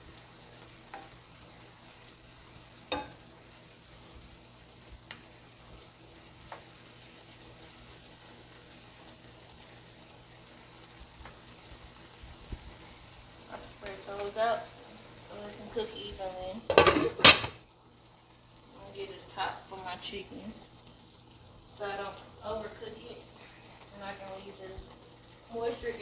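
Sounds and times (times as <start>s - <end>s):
mushrooms sizzling in a pan: 0.0s - 26.0s
spatula tapping and scraping pan: 0.9s - 1.2s, 2.9s - 3.2s.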